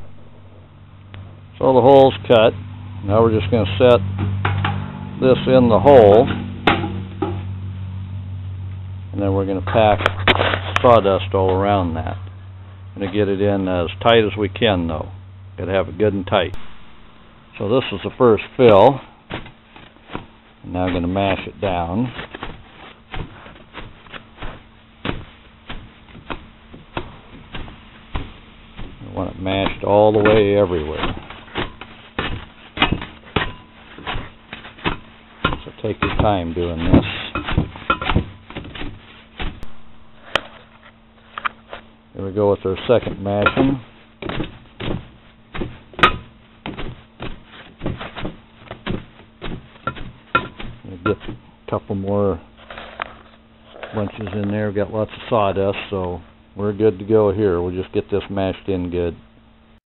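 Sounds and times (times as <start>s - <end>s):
dull thumps of ramming sawdust: 16.3s - 52.6s.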